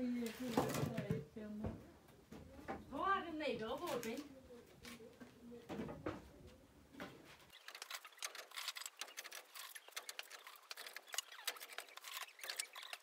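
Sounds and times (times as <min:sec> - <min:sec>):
firewood clicks and knocks: 0:07.0 - 0:13.0.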